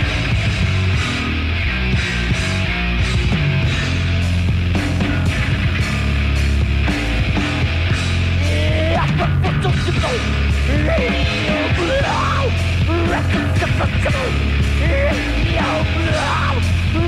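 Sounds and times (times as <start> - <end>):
death metal band playing live: 0.0 - 17.0.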